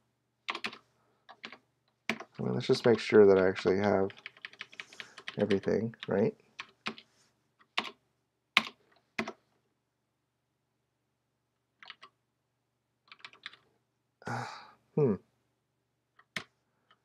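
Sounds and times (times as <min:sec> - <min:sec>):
keyboard typing: 0:00.5 - 0:08.0, 0:08.6 - 0:09.4, 0:11.8 - 0:12.2, 0:13.1 - 0:13.6, 0:16.1 - 0:17.0.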